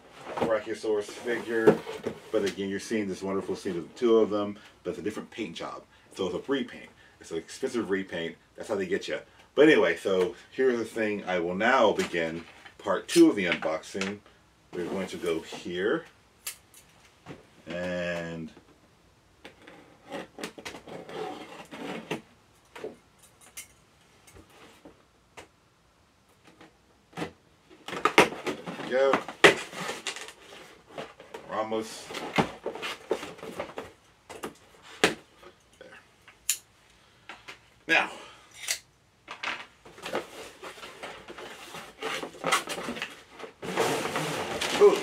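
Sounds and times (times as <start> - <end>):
cardboard rustling: 0.1 - 2.7, 26.5 - 35.3, 39.8 - 45.0.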